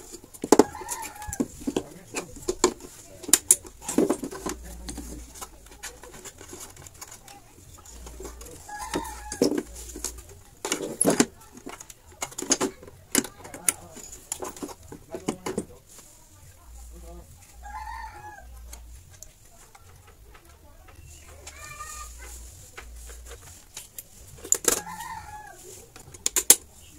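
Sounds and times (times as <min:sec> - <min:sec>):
chicken clucking: 0:24.7 - 0:26.0.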